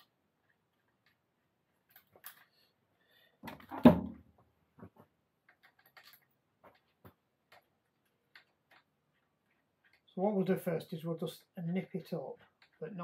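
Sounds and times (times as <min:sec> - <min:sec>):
light clicks and taps of tools: 0:00.0 - 0:02.8, 0:04.8 - 0:10.2, 0:11.9 - 0:13.0.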